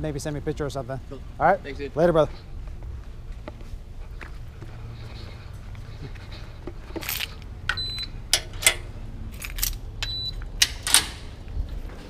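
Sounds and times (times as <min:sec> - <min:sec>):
metal security gate clanking: 0:07.7 - 0:11.4.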